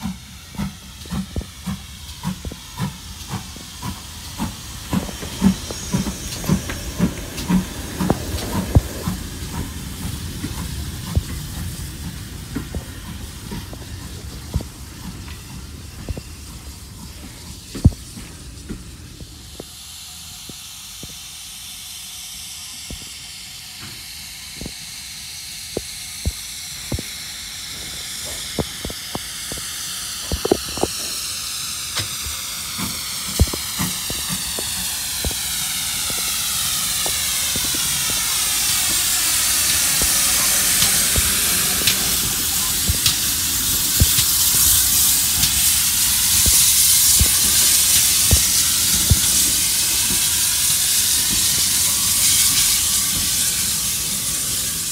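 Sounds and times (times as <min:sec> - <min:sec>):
steam locomotive hissing: 0:00.0 - 0:54.9.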